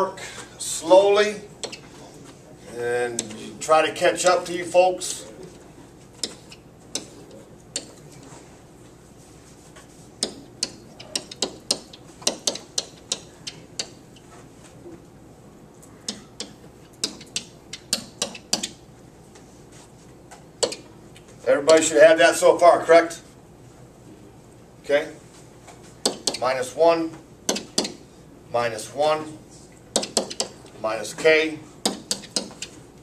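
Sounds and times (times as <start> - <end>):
pen tapping on board: 10.2 - 14.0, 16.1 - 18.8, 26.0 - 26.4, 29.9 - 30.6, 31.9 - 32.7.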